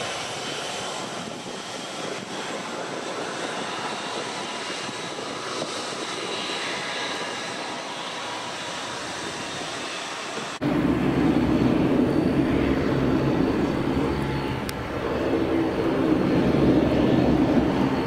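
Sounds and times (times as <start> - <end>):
high engine whine: 0.0 - 18.0
jet engines rumbling: 0.0 - 18.0.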